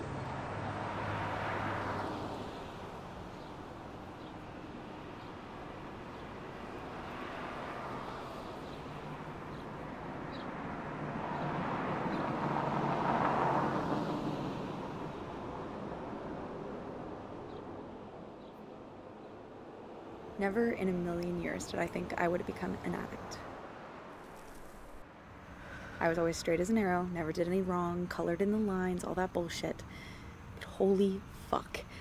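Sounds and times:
vehicle passing by: 0:00.0 - 0:27.0.

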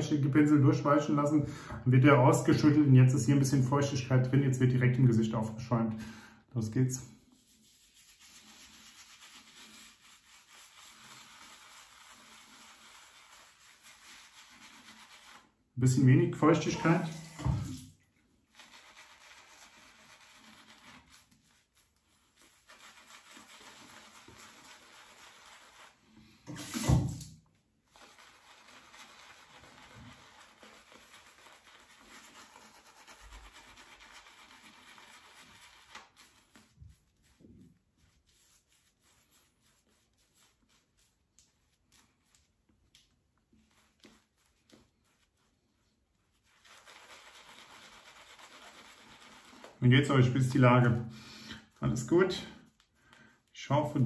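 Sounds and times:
shaving brush rubbing stubble: 0:07.0 - 0:26.9, 0:27.8 - 0:51.0.

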